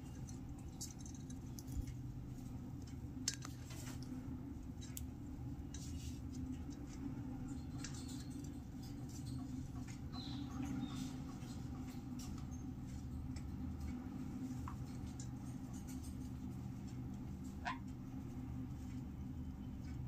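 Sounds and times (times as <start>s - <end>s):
parrots scratching and clicking on nest: 0.0s - 2.0s
low background hum: 0.0s - 20.0s.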